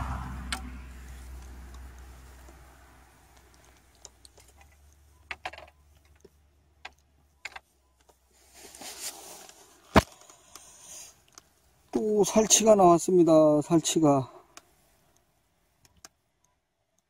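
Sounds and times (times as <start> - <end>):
brief rustle: 8.3 - 11.4.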